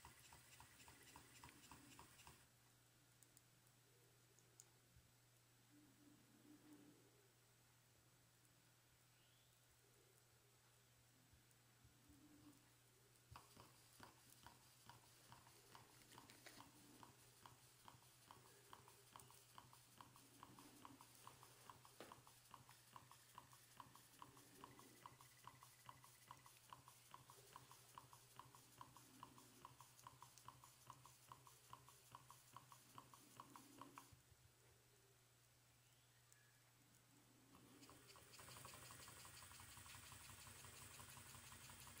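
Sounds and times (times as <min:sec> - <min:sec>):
low steady hum: 0:00.0 - 0:42.0
steam engine ticking: 0:13.4 - 0:34.1, 0:37.7 - 0:42.0.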